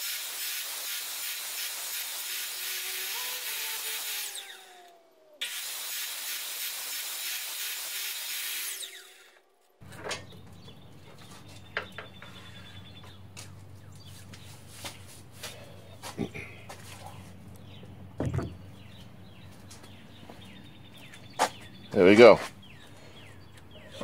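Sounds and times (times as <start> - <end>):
miter saw running: 0.0 - 9.4
saw blade spinning down: 0.0 - 9.4.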